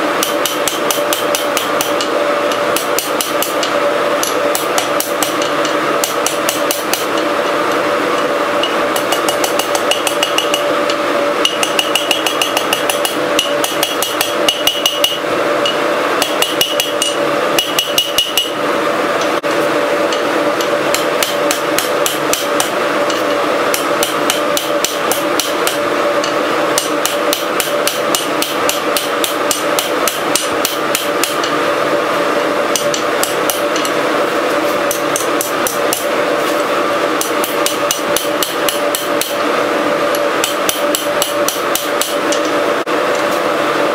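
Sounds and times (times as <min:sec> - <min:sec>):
hammer striking steel on anvil: 0:00.2 - 0:07.3, 0:08.6 - 0:18.6, 0:20.1 - 0:31.5, 0:32.7 - 0:34.0, 0:34.8 - 0:36.1, 0:37.2 - 0:39.4, 0:40.4 - 0:42.5.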